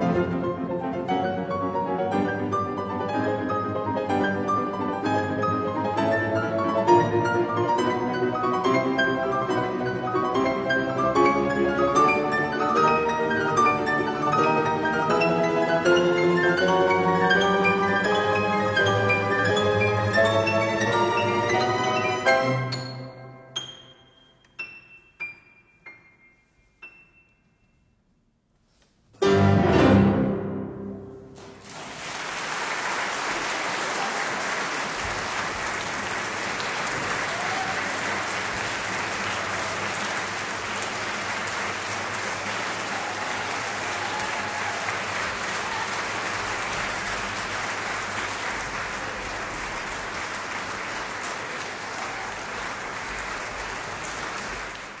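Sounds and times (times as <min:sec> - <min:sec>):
audience applause: 0:31.4 - 0:55.0.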